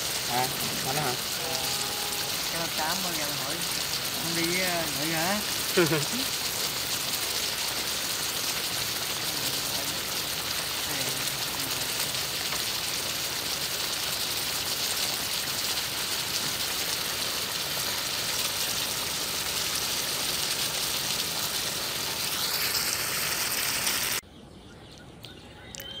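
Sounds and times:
crab sizzling in hot pan: 0:00.0 - 0:24.2.

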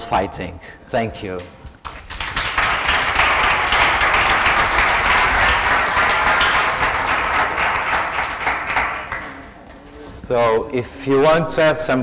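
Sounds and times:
audience applauding: 0:01.8 - 0:09.6.

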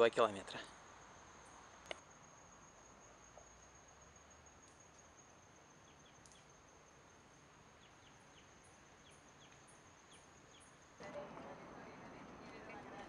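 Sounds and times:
high-pitched insect whine: 0:00.9 - 0:11.1.

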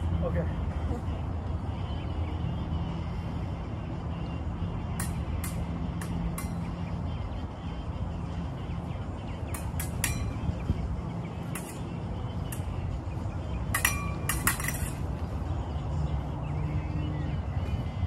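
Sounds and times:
fencing blades clinking: 0:04.6 - 0:18.0.

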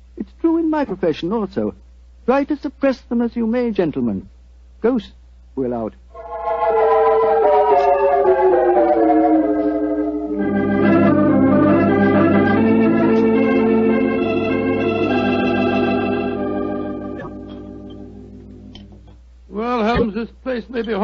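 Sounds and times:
organ playing chords: 0:06.1 - 0:19.1.

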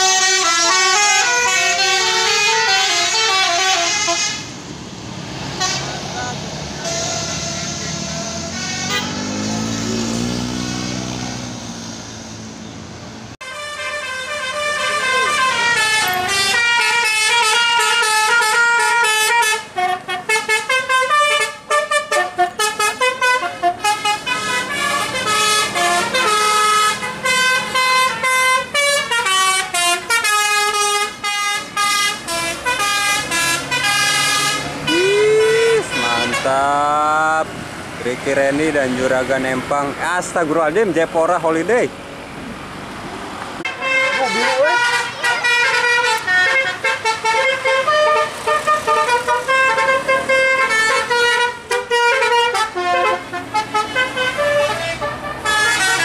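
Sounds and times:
musical bus horn melody: 0:00.0 - 0:04.6, 0:05.5 - 0:11.0, 0:13.4 - 0:37.1, 0:43.7 - 0:56.0
bus engine passing: 0:00.0 - 0:56.0.

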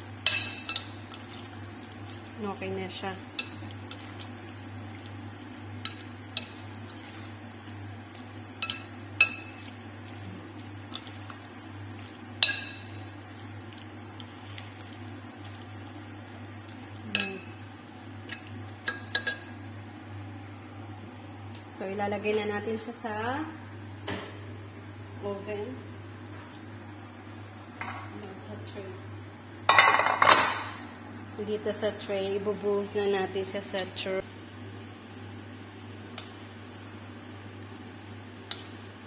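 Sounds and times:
steady low hum: 0:00.0 - 0:30.0
spoon stirring thick mixture: 0:00.3 - 0:17.3.

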